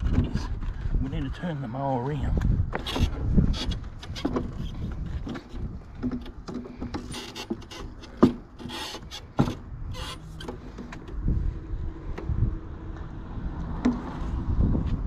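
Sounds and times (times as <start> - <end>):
lawn mower scraping and rubbing: 2.8 - 11.5.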